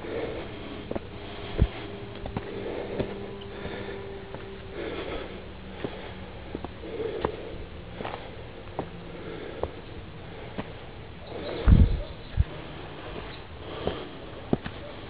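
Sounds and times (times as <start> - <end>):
person breathing hard: 0.0 - 15.0
footsteps on loose stones: 0.9 - 7.4, 8.0 - 9.9.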